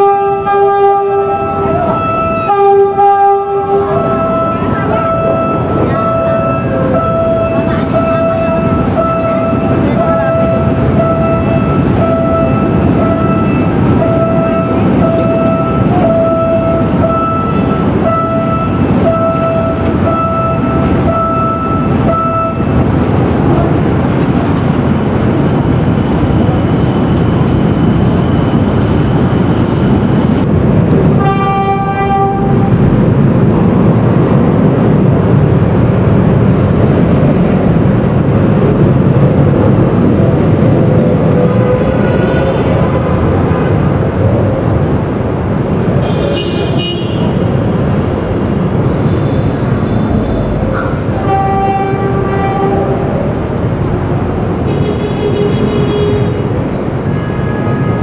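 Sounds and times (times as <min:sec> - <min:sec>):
train horn: 0:00.0 - 0:22.7, 0:31.1 - 0:32.8, 0:50.5 - 0:53.2, 0:57.1 - 0:58.0
diesel locomotive rumbling past: 0:00.0 - 0:58.0.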